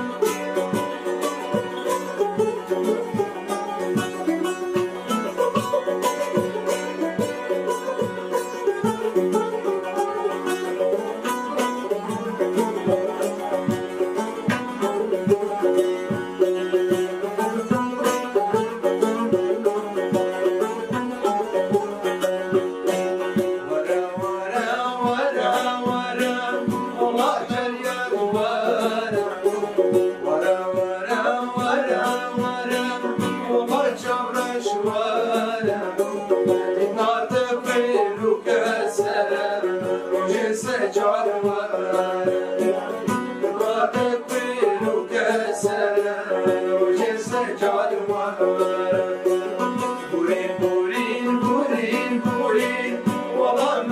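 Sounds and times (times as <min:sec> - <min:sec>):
plucked long-necked lutes: 0:00.0 - 0:53.9
man singing: 0:17.1 - 0:21.4, 0:23.2 - 0:53.9.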